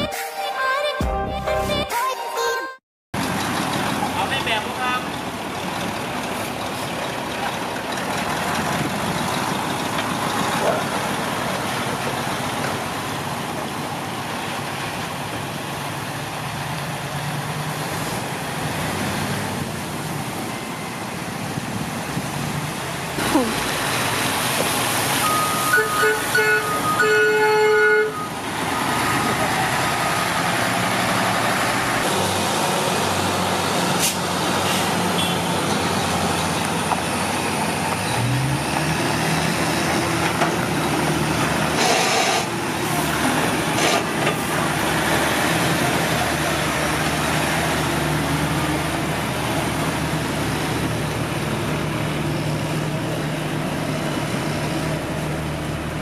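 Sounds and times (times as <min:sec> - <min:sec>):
heavy diesel truck engine: 0:03.2 - 0:56.0
air brake hiss: 0:34.0 - 0:35.0, 0:41.8 - 0:42.5.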